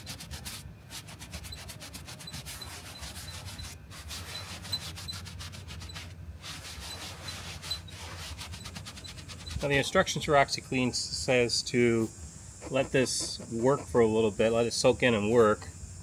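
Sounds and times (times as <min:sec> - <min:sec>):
brush scrubbing upholstery: 0:00.0 - 0:10.0, 0:12.6 - 0:14.1.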